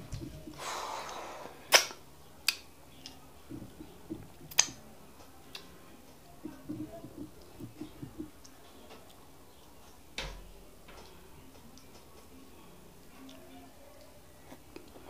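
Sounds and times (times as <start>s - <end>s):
fingers squishing food: 1.7s - 10.0s.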